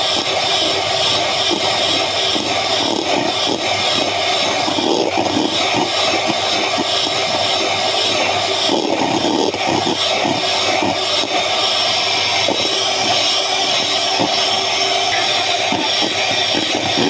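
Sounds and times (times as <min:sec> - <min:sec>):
electric hand mixer whipping cream: 0:00.0 - 0:17.0.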